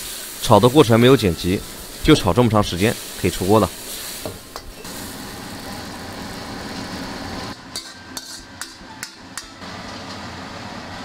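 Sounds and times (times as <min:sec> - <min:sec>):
gas burner roaring: 0:00.0 - 0:11.0
oil sizzling in a wok: 0:00.0 - 0:11.0
spatula clinking and scraping: 0:07.6 - 0:09.6
metal spatula knocking wok: 0:07.7 - 0:09.6.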